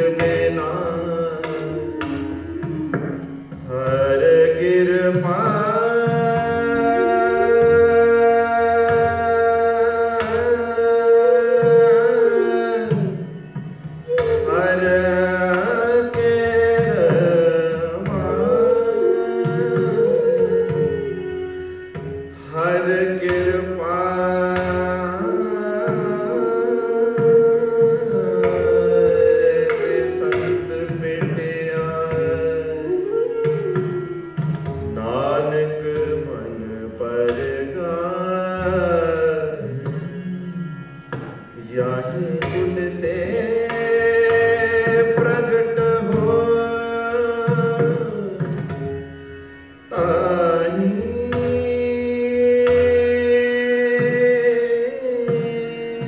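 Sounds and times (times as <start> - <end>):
hand drums: 0.0 - 4.5
flute melody: 0.4 - 4.8, 5.4 - 31.5, 32.1 - 36.6
shehnai melody: 5.9 - 10.1, 16.6 - 23.0, 25.1 - 30.8, 32.5 - 36.0.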